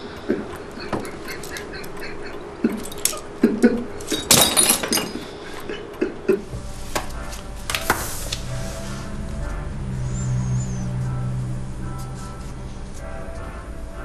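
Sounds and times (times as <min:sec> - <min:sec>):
man sobbing: 0:00.0 - 0:06.5
steady low hum: 0:00.0 - 0:14.0.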